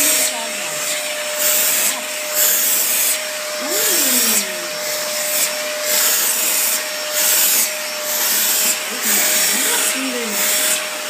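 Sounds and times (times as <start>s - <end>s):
vacuum cleaner running: 0.0s - 11.0s.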